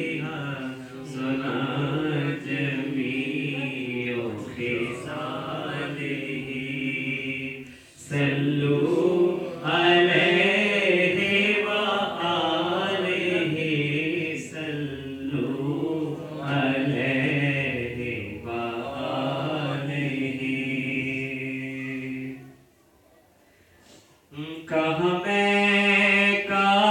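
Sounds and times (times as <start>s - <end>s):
man singing unaccompanied: 0.0s - 22.5s, 24.3s - 26.9s.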